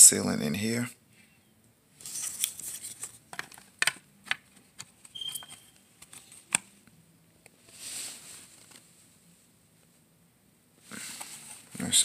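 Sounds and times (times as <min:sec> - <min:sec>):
plastic housing clicks and taps: 0:03.4 - 0:06.6.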